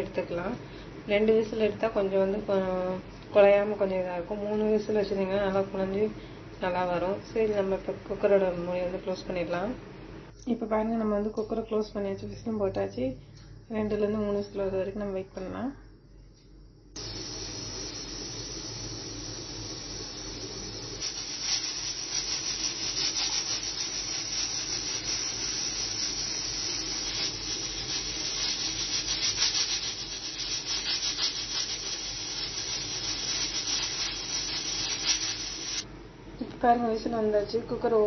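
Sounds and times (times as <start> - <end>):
pressure cooker hissing: 16.9 - 35.9
steam sputtering from vent: 17.0 - 35.8.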